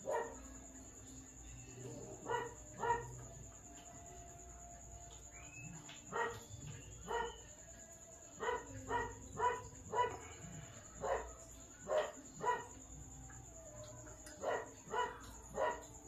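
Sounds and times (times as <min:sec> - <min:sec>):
dog barking: 0:00.0 - 0:00.5, 0:01.9 - 0:03.3, 0:06.1 - 0:07.4, 0:08.4 - 0:12.8, 0:14.1 - 0:16.0.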